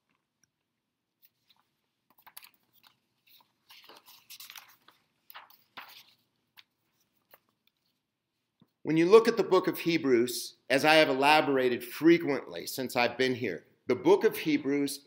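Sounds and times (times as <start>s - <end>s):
rustling and crinkling: 0.0s - 8.8s.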